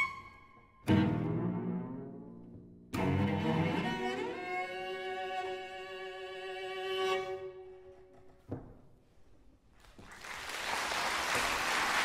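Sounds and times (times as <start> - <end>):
cello bowed note: 0.0 - 7.8
audience applause: 10.0 - 12.0.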